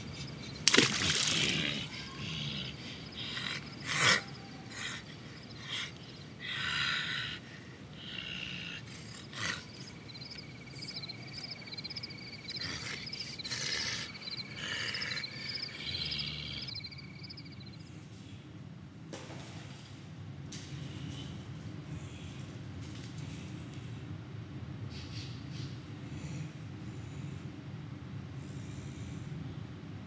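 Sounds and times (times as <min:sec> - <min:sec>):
insects chirping trill: 0:00.0 - 0:07.4, 0:08.0 - 0:17.9.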